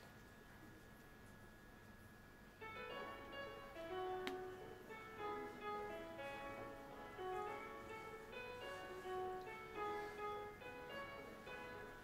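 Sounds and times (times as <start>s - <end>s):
departure melody over speakers: 2.6s - 12.0s.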